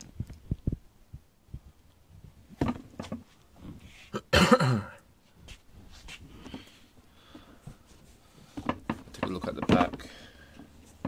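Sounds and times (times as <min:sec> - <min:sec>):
person coughing: 0:04.2 - 0:05.0.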